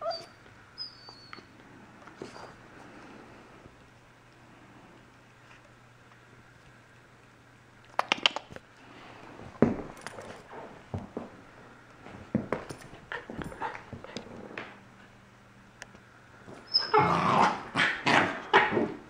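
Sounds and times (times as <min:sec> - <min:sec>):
puppy whimpering and yipping: 0:00.0 - 0:01.5, 0:16.6 - 0:17.2.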